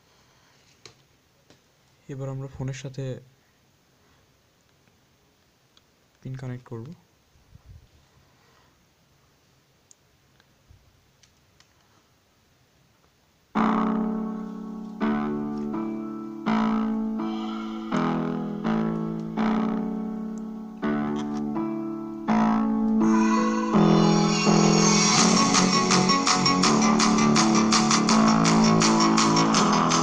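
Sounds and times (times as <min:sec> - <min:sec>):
piano music through small speaker: 0:13.6 - 0:30.0.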